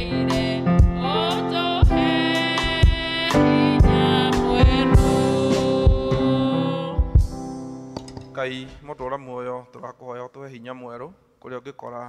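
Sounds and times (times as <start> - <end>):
thumping beat: 0.0 - 1.2, 1.8 - 8.9
worship song with instruments: 0.0 - 8.8.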